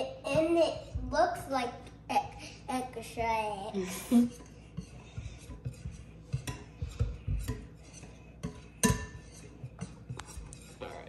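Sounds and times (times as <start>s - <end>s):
whisk clinking in glass bowl: 4.3s - 10.8s.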